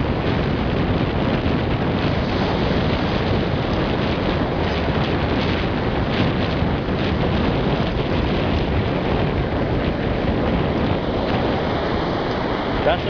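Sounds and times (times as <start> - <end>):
surf running up sand: 0.0 - 13.0
wind buffeting microphone: 0.0 - 13.0.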